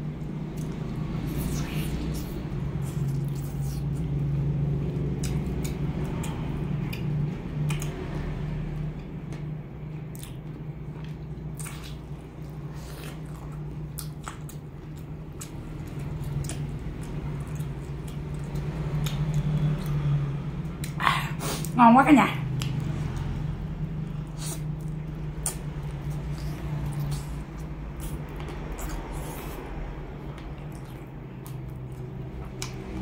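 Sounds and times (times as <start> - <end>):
steady low hum: 0.0 - 33.0
wet chewing: 0.2 - 8.1, 10.1 - 21.8, 24.2 - 33.0
lip and tongue clicks: 5.2 - 8.1, 10.1 - 10.4, 24.4 - 29.6, 30.4 - 33.0.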